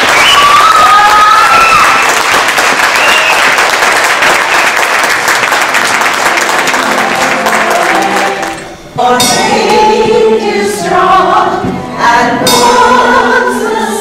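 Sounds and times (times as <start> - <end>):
close hands clapping: 0.0 - 8.7
crowd clapping: 0.0 - 8.8.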